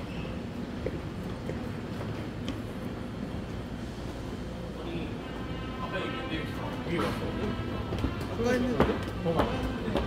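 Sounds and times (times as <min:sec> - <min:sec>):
low rumble of trains: 0:00.0 - 0:10.0
footsteps on stairs: 0:07.9 - 0:10.0.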